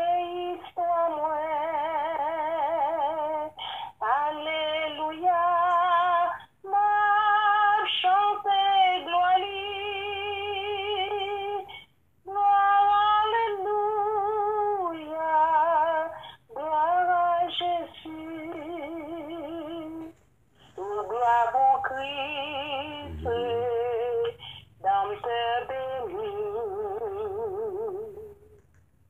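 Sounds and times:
high voice singing with vibrato: 12.3 - 28.4.

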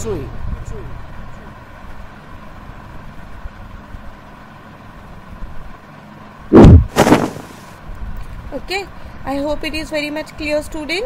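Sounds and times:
cartoon whoosh effects: 6.6 - 7.6.

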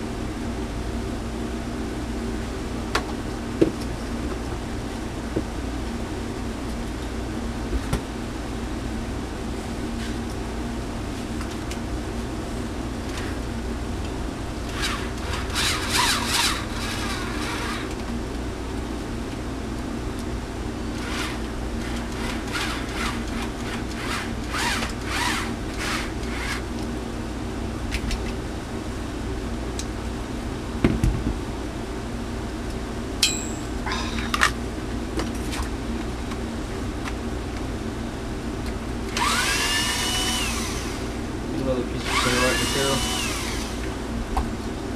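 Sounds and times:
steady hum: 0.0 - 44.9
motor whir rising in pitch: 14.7 - 17.9, 24.0 - 26.6, 39.1 - 41.2, 42.0 - 43.9
screwdriver squeaking and grinding: 14.7 - 18.0, 21.0 - 26.6.

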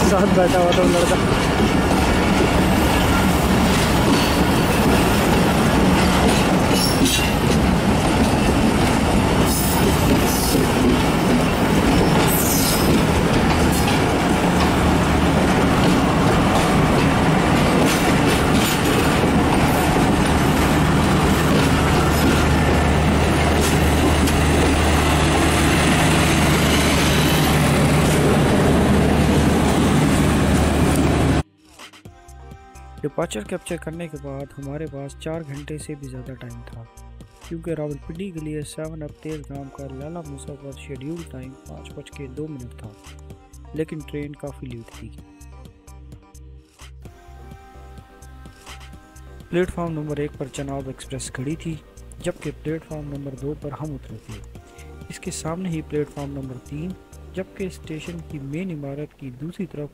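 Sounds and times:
train wheels rumbling on rail: 0.0 - 31.4.

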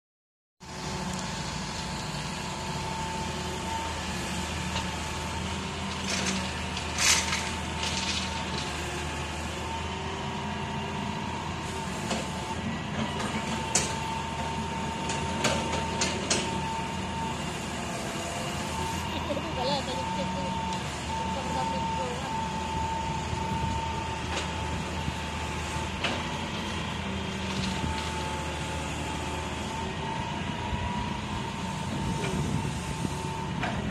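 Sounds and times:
constant high whine: 0.6 - 33.9
excavator diesel engine running: 0.6 - 33.9
gravel and stones clattering: 5.9 - 8.9.

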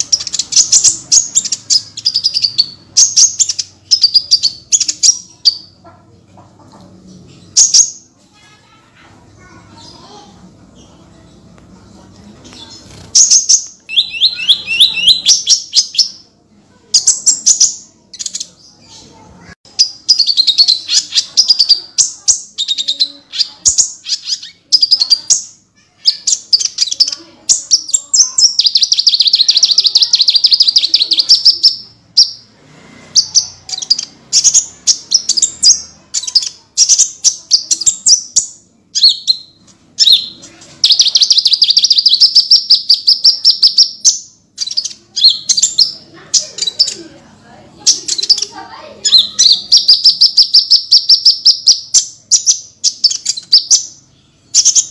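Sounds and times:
songbird trilling: 12.6 - 16.2, 19.7 - 32.4, 33.2 - 47.0, 47.8 - 54.9.

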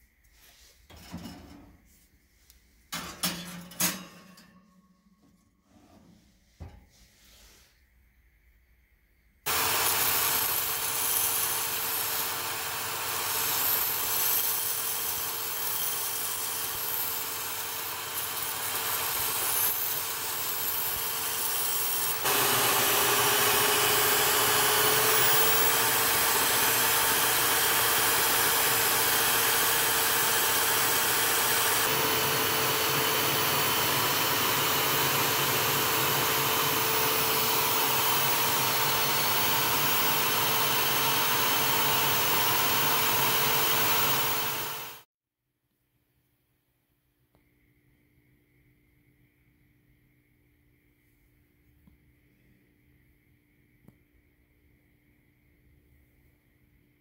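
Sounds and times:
belt grinder grinding steel blade: 9.5 - 45.1
motor hum: 17.7 - 45.0.

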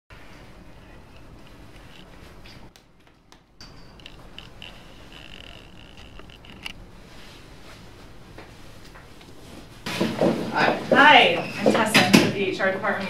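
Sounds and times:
low room hum: 0.1 - 13.0
small clicks: 3.9 - 6.8.

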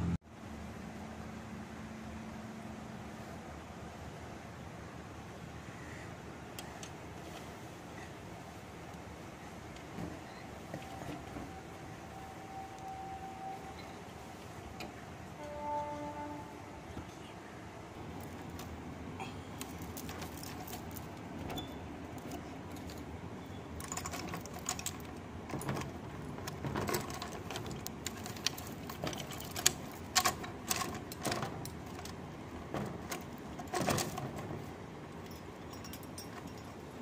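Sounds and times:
bangles clinking on metal bar: 35.2 - 37.0.

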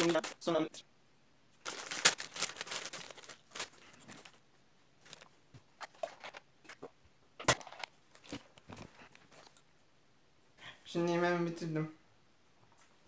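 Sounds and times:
snack and bottle handling: 5.0 - 9.7.

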